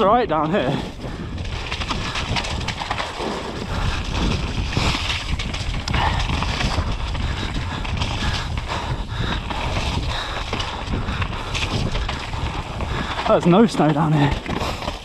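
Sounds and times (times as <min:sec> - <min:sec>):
bike clattering over bumps: 0:00.0 - 0:15.0
tyres rolling on wet dirt: 0:00.0 - 0:15.0
wind rumbling on microphone: 0:00.0 - 0:15.0.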